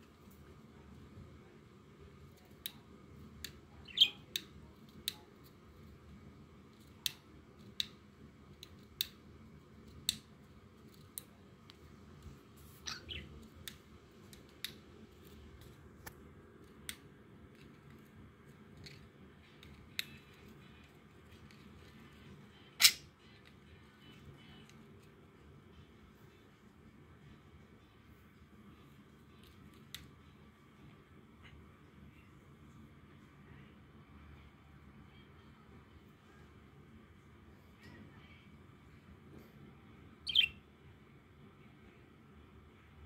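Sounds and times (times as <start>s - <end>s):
bird chirps: 3.8s - 4.4s, 12.8s - 13.4s, 40.2s - 40.6s.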